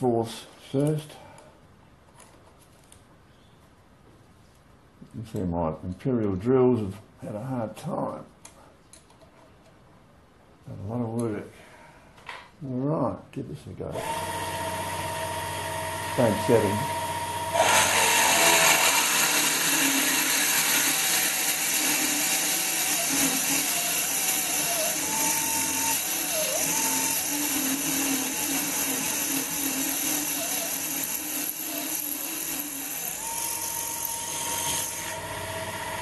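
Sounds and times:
drill motor whine: 0:14.0 - 0:36.0.

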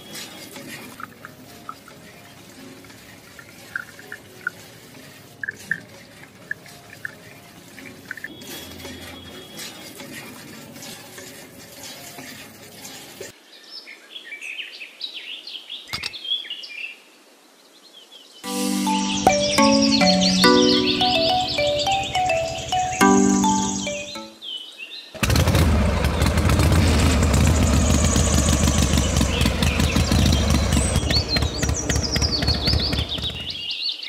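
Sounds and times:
water drips and splashes: 0:00.1 - 0:09.0
water trickling from hose: 0:00.2 - 0:09.0, 0:09.6 - 0:13.4
short high chirps: 0:18.4 - 0:24.4.

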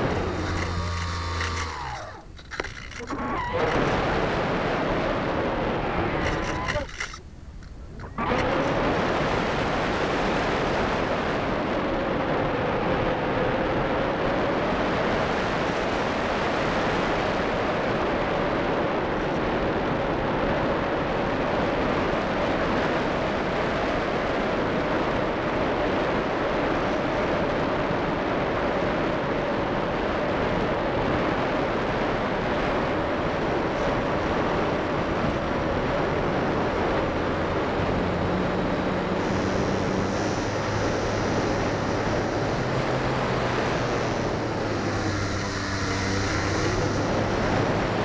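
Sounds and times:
steady hum: 0:00.0 - 0:03.2, 0:32.2 - 0:48.0
motor and airflow rushing: 0:00.0 - 0:19.0, 0:21.5 - 0:48.0.

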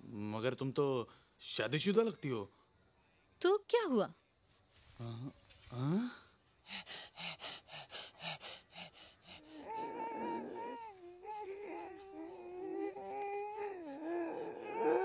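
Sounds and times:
man breathing quickly: 0:06.0 - 0:09.9
man whimpering: 0:09.4 - 0:15.0.

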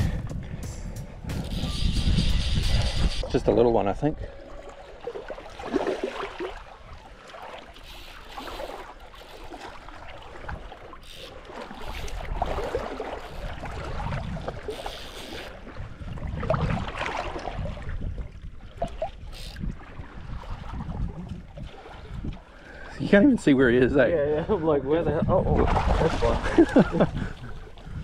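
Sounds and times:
low rumble: 0:00.0 - 0:03.3
shallow water splashing: 0:02.4 - 0:23.6, 0:25.5 - 0:28.0.

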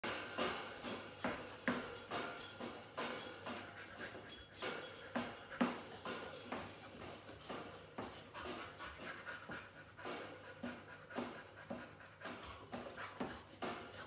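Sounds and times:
dog panting: 0:00.2 - 0:14.0.

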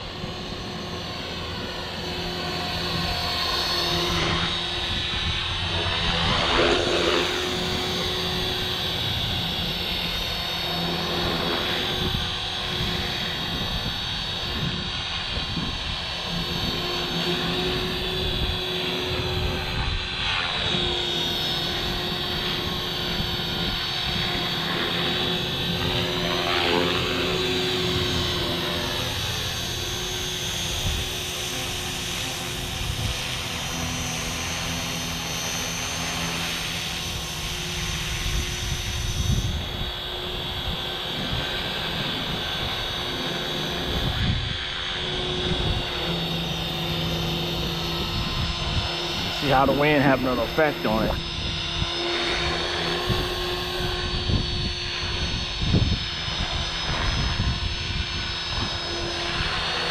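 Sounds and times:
rc helicopter whine and buzz: 0:00.0 - 0:59.9
wind buffeting microphone: 0:11.8 - 0:16.9, 0:17.5 - 0:20.9, 0:37.1 - 0:46.2, 0:47.6 - 0:49.9, 0:51.0 - 0:59.7.

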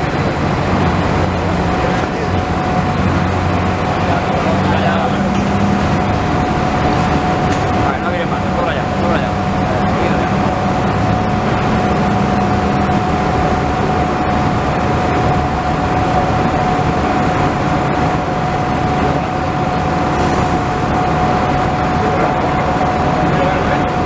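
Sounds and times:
constant machine whine: 0:00.0 - 0:24.0
heavy machinery drone: 0:00.0 - 0:24.0.

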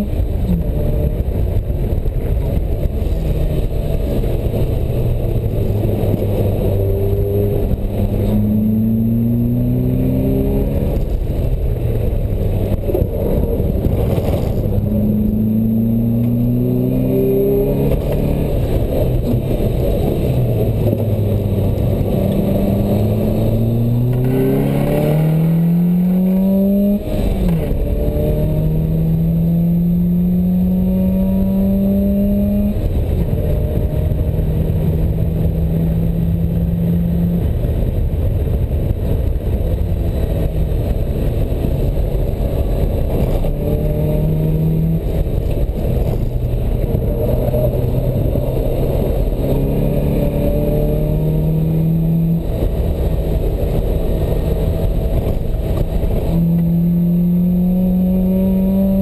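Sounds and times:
sports car engine revving: 0:00.0 - 0:37.9, 0:38.8 - 0:59.0
wind and road noise: 0:00.0 - 0:59.0.

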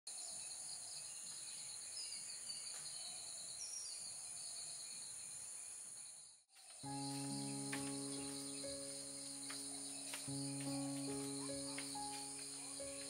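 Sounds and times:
bird chirps: 0:00.2 - 0:13.0
insects buzzing: 0:02.8 - 0:13.0.

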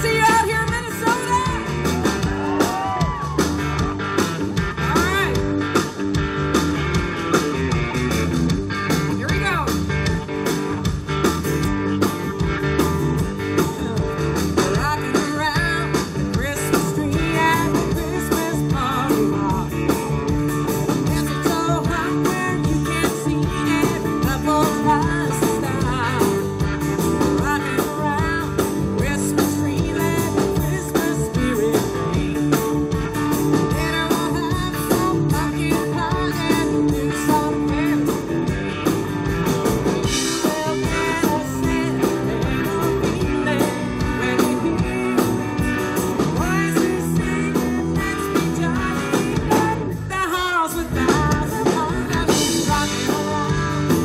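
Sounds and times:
woman singing: 0:00.0 - 0:02.0, 0:13.5 - 0:20.2, 0:20.8 - 0:38.6, 0:40.1 - 0:54.0
live band playing: 0:00.0 - 0:54.0.

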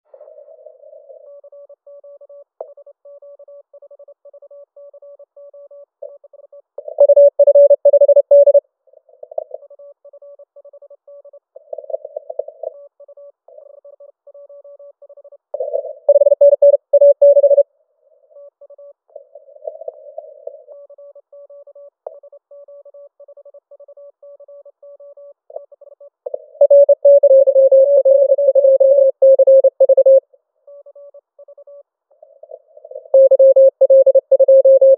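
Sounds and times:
faint high-pitched morse signal: 0:00.3 - 0:08.6, 0:09.3 - 0:17.6, 0:18.3 - 0:34.9
morse code tones: 0:06.8 - 0:08.6, 0:15.6 - 0:17.6, 0:26.3 - 0:30.2, 0:32.4 - 0:34.9.

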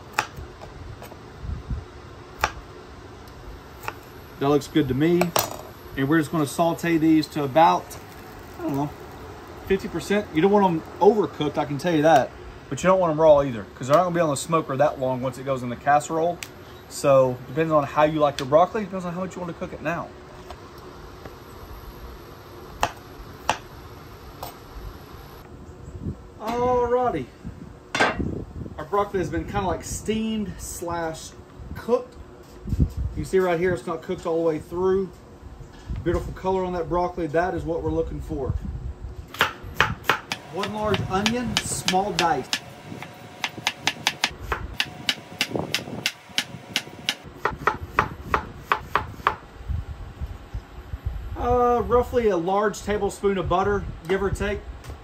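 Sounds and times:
knife chopping on wooden board: 0:39.4 - 0:49.4.

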